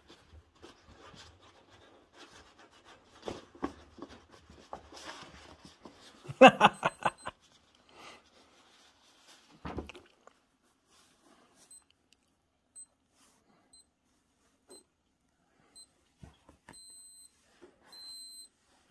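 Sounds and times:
electronic alarm beeping: 6.7 - 7.3, 16.8 - 17.3, 17.9 - 18.5.

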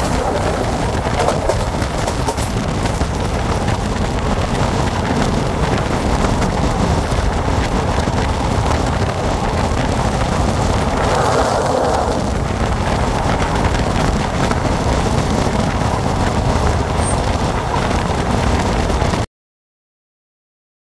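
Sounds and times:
train wheels rumbling on rails: 0.0 - 19.2
wind on microphone: 0.0 - 19.3.

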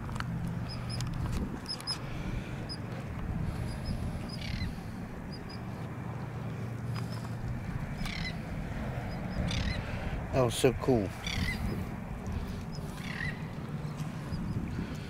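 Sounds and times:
birds chirping: 0.6 - 5.8, 6.4 - 15.0.

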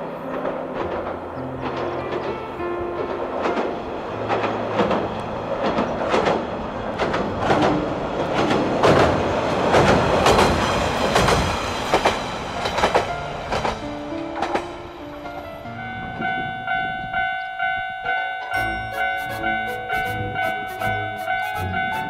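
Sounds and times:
rumble of rail noise: 0.0 - 22.0
train wheels clacking over rail joints: 0.2 - 14.7.

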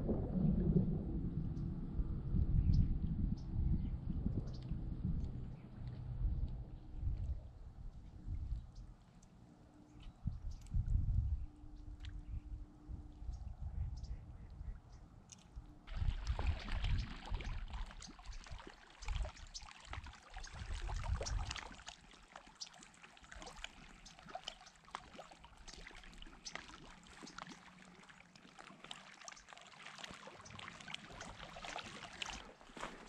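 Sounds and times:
low rumbles: 0.0 - 9.0
small waves lapping on stones: 15.9 - 33.0.

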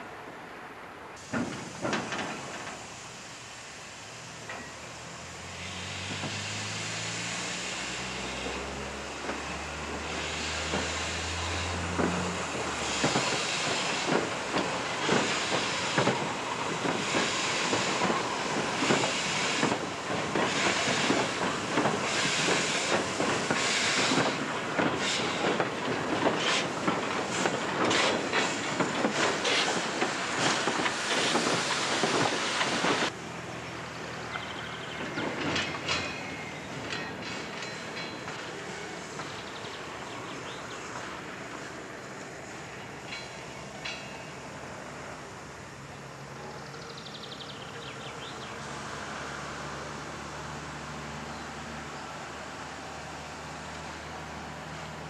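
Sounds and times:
steam locomotive chuffing: 1.2 - 33.5
wagon wheels clacking on rail joints: 34.3 - 39.8.

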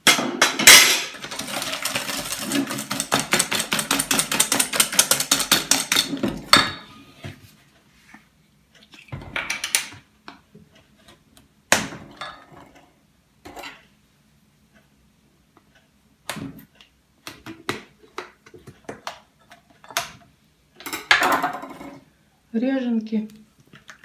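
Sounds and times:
kitchen utensils clacking and clinking: 0.0 - 7.0.

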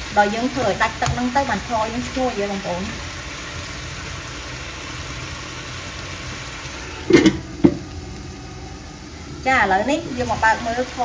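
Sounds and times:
metal lid clanking onto wok: 7.0 - 7.9.

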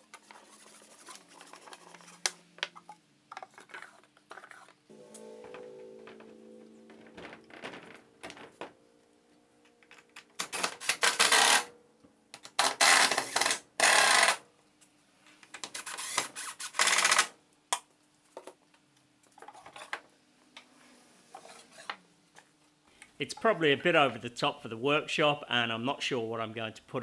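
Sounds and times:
cordless drill driving screws: 12.7 - 14.4.

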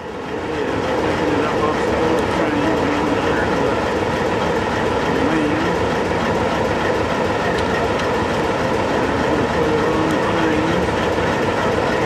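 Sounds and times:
diesel locomotive engine rumble: 0.0 - 12.0.

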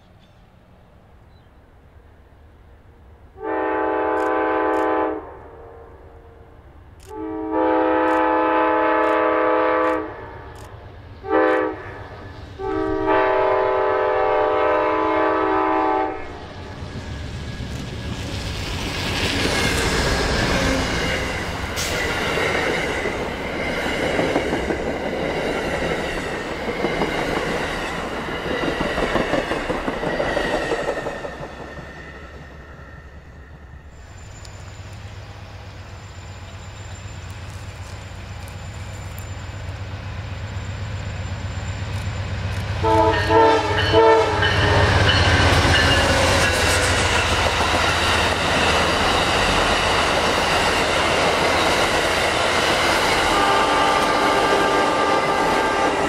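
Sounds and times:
train rumbling past on rails: 0.0 - 56.0
locomotive air horn blasts: 3.4 - 10.5, 11.2 - 16.5, 42.8 - 45.3, 53.3 - 56.0.

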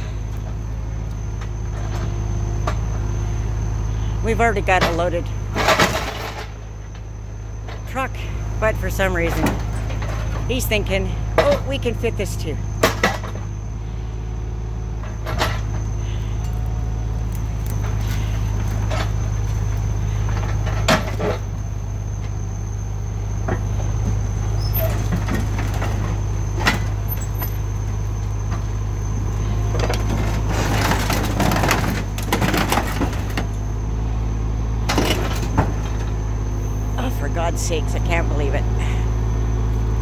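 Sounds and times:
tractor diesel engine running: 0.0 - 40.0
metal scraping and crunching: 4.6 - 7.0, 15.0 - 22.3, 24.5 - 33.8, 34.8 - 36.3.

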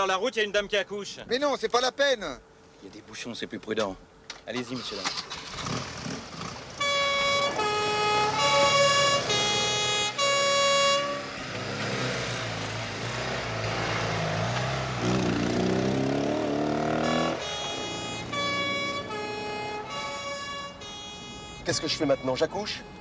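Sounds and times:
vehicle engines running: 1.6 - 23.0
engine revving and accelerating: 5.3 - 10.0, 11.2 - 20.4
two-tone police siren: 6.8 - 11.5, 16.9 - 23.0.

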